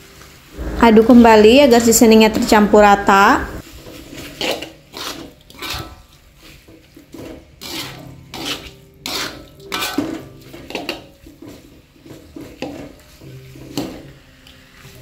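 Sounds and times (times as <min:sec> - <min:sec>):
metal spatula scraping wok: 0:03.6 - 0:14.2.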